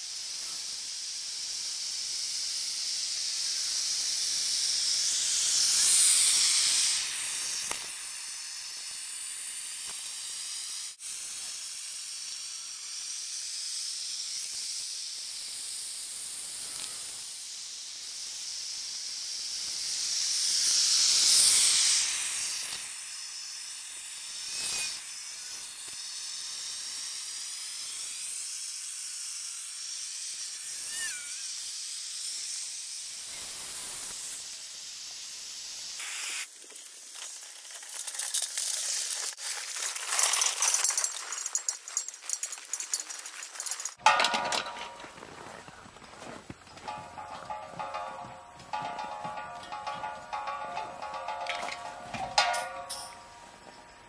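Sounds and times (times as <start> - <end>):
propane burner hissing: 0.0 - 13.3, 13.9 - 26.0, 33.0 - 42.4
brief high squeaks: 30.8 - 31.5.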